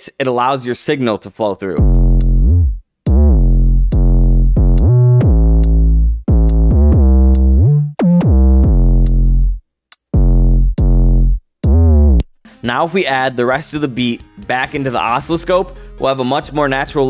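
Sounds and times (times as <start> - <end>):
distorted sliding bass notes: 1.8 - 9.6, 10.2 - 12.3
trap beat: 1.8 - 12.2.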